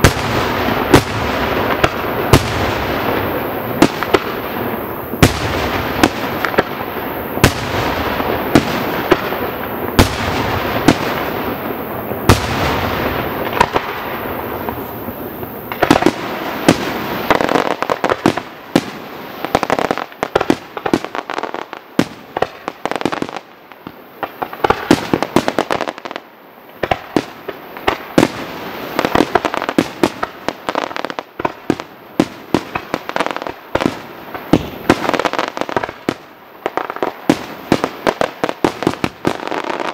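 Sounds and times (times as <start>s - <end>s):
fireworks bangs: 0.0s - 26.2s, 26.8s - 39.9s.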